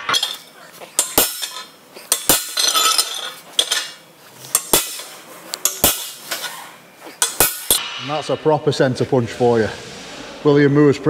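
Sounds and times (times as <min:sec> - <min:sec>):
hammer striking metal punch: 0:04.6 - 0:06.2.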